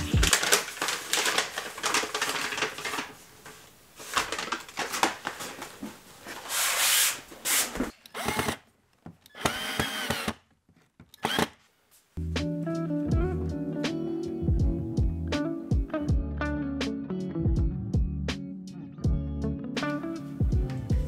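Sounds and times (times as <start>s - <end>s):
paper and plastic rustling: 0.0s - 7.9s
cordless drill driving screws: 8.0s - 8.6s, 9.3s - 10.4s, 11.2s - 11.6s.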